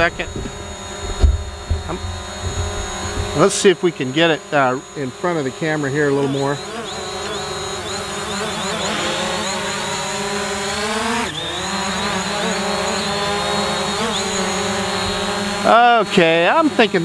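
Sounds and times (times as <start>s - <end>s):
drone propellers buzzing: 0.0s - 17.0s.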